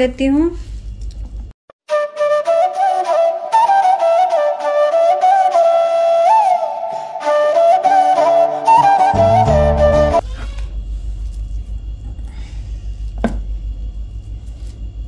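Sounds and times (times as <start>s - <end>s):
flute melody: 1.9s - 10.2s
lower musical accompaniment: 1.9s - 10.2s.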